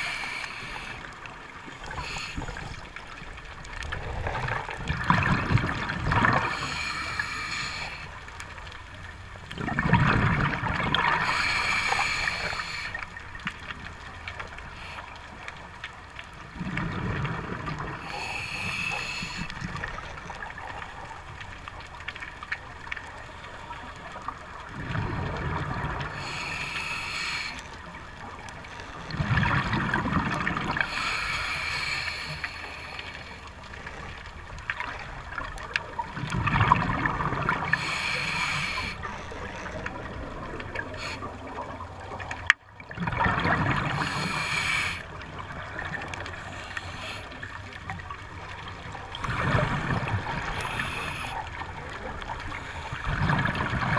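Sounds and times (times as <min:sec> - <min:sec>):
regulator inhale hiss: 0:00.0 - 0:03.0, 0:06.4 - 0:08.2, 0:11.1 - 0:13.2, 0:14.4 - 0:15.7, 0:18.0 - 0:19.8, 0:26.1 - 0:28.0, 0:30.8 - 0:33.6, 0:37.7 - 0:39.3, 0:40.7 - 0:41.6, 0:43.9 - 0:45.2, 0:46.2 - 0:47.8, 0:49.3 - 0:53.1
exhaled bubbles gurgling: 0:00.0 - 0:53.9.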